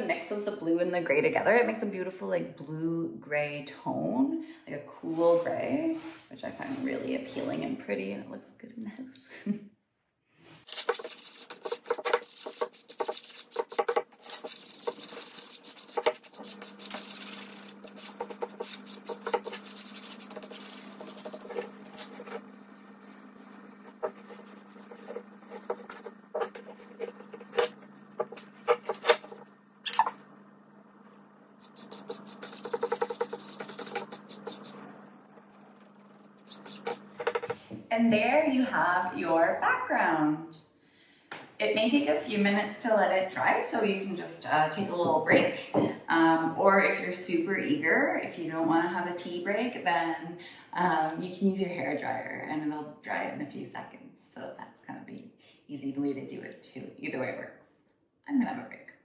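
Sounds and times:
paintbrush scrubbing on board: 0:10.7 - 0:30.1, 0:31.6 - 0:37.6.

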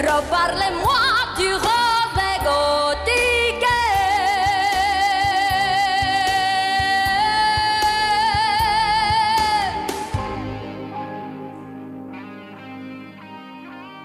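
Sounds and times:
woman singing: 0:00.0 - 0:10.6
backing track: 0:00.0 - 0:14.0.

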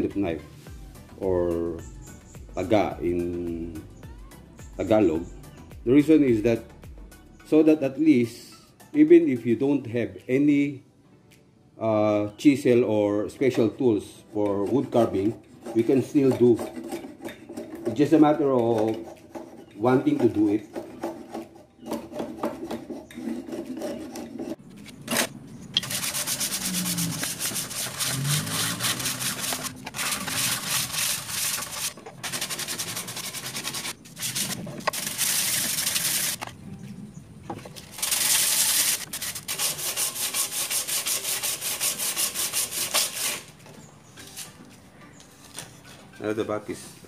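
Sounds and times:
scraping wooden ladle: 0:14.4 - 0:36.5, 0:37.7 - 0:43.6.

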